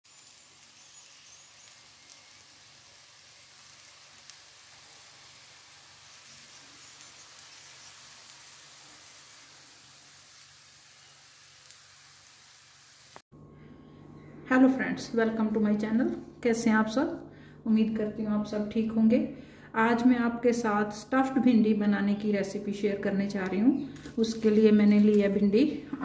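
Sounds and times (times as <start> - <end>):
food sizzling in a pan: 0.0 - 13.3.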